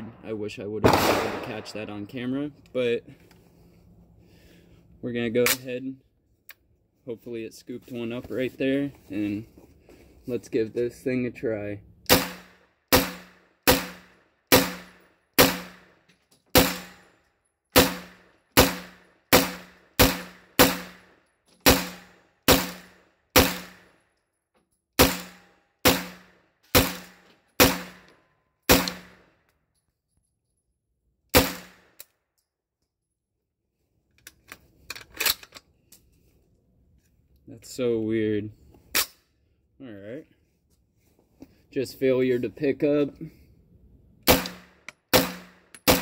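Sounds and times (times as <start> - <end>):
pistol shots with echo: 0.8 - 2.0, 12.1 - 15.8, 17.8 - 21.0, 21.7 - 23.8, 44.3 - 46.0.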